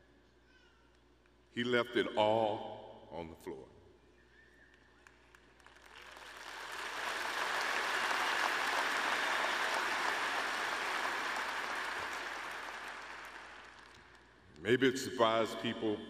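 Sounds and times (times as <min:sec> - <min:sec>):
large audience applauding: 0:05.3 - 0:14.3.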